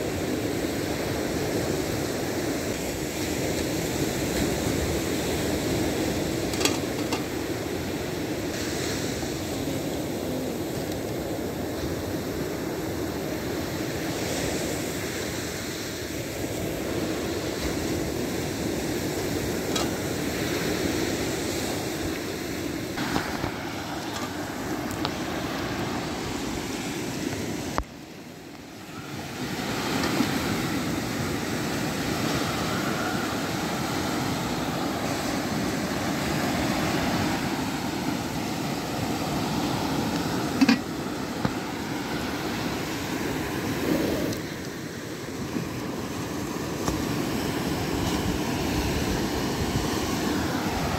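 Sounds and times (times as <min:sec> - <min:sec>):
ocean surf: 0:00.0 - 0:50.9.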